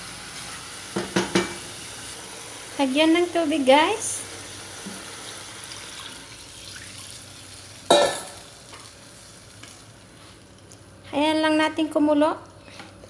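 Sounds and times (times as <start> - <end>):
water splashing into hot oil: 5.6 - 8.9.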